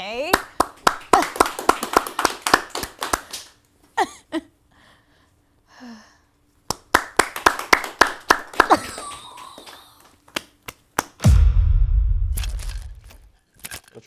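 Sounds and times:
people clapping: 0.2 - 3.6, 6.7 - 11.2.

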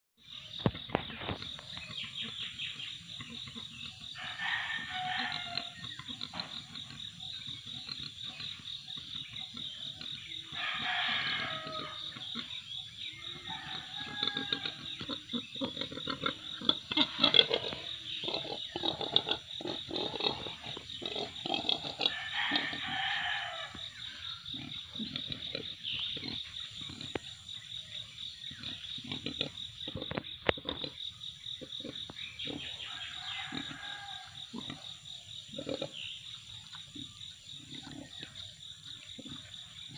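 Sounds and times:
insects chirring: 0.2 - 39.9
rooster crowing: 4.2 - 5.8, 10.6 - 12.1, 13.2 - 14.9, 22.0 - 23.9, 32.8 - 34.5.

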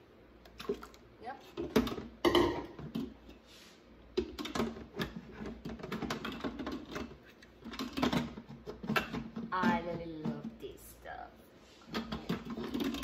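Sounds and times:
lid clicking and scraping: 11.9 - 13.0.

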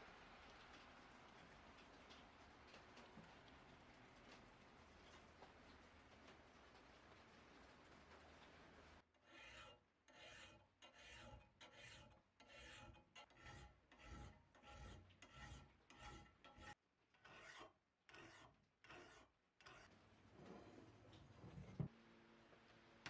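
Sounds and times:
file rasping on metal: 9.2 - 20.0.

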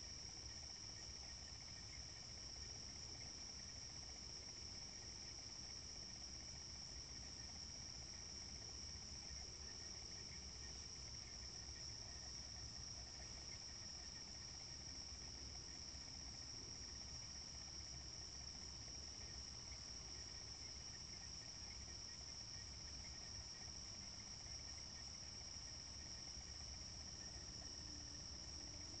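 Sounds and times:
night insects chirring: 0.0 - 29.0.

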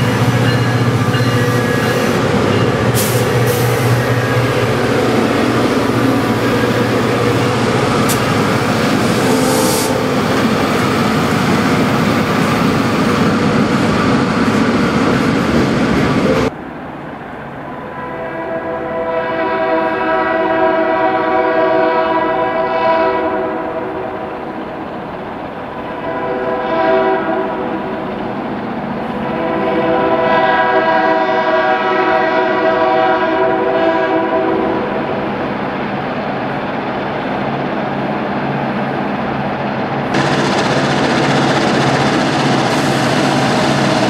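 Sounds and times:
train rumbling: 0.0 - 44.0
locomotive air horn blasts: 9.1 - 10.2, 17.9 - 24.1, 25.9 - 27.7, 29.2 - 35.0.

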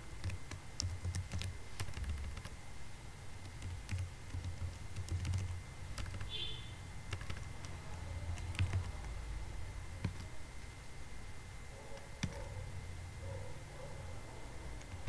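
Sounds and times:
computer keyboard keys clicking: 0.2 - 2.6, 3.4 - 6.4, 7.1 - 9.2, 10.0 - 10.3, 12.0 - 12.5, 14.8 - 15.0.

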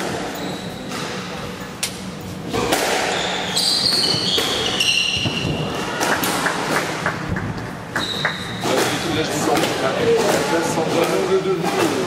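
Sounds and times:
shoe squeaks on wooden floor: 0.4 - 0.9, 3.1 - 5.7.

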